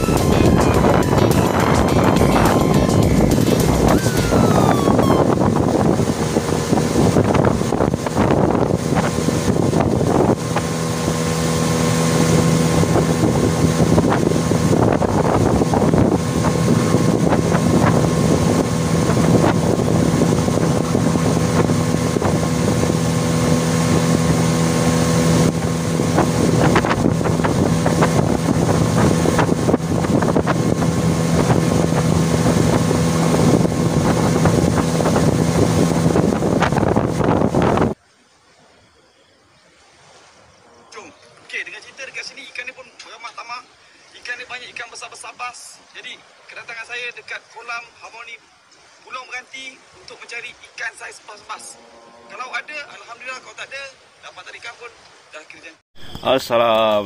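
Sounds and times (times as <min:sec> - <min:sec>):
outboard motor running: 0:00.0 - 0:38.0
wind buffeting microphone: 0:00.0 - 0:38.0.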